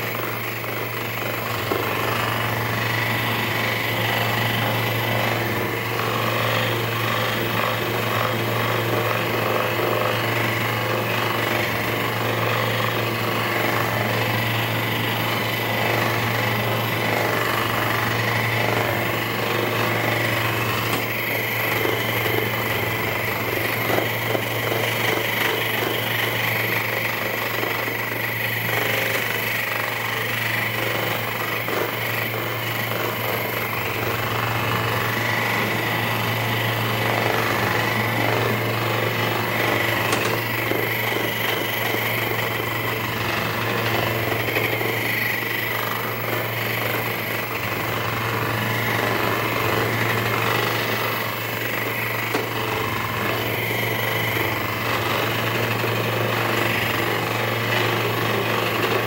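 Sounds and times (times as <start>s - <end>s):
massage gun hammering: 39.5s - 43.1s, 49.0s - 54.6s.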